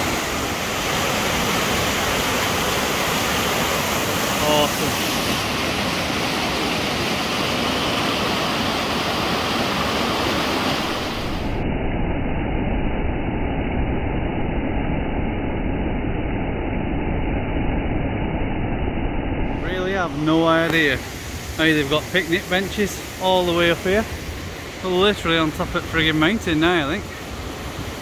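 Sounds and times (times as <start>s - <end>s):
stream rushing over rocks: 0.0s - 11.5s, 19.7s - 28.0s.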